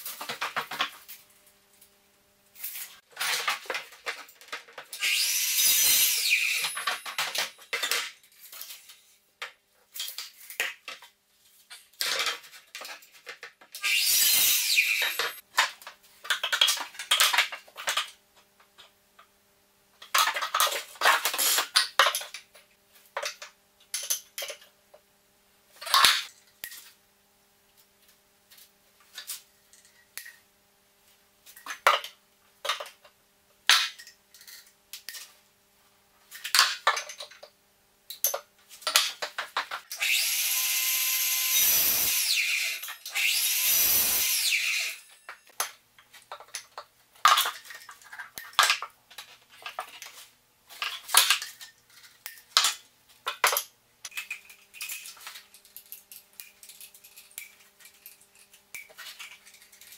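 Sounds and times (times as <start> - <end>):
mitre saw cutting wood: 5.0 - 7.0, 13.8 - 15.4, 40.0 - 45.2.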